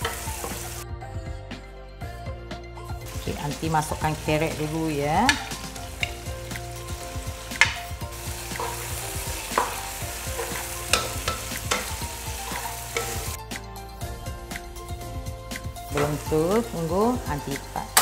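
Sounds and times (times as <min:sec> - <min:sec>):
food sizzling in oil: 0:00.0 - 0:00.8, 0:03.0 - 0:13.4
spatula knocking against pan: 0:10.4 - 0:13.3.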